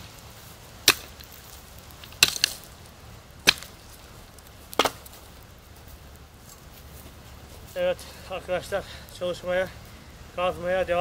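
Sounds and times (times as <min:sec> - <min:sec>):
mattock striking hard ground: 0:00.8 - 0:02.8, 0:03.4 - 0:07.9.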